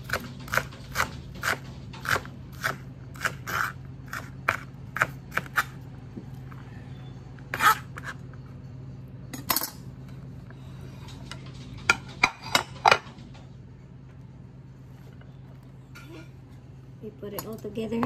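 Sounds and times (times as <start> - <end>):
knife chopping on cutting board: 0.0 - 5.8.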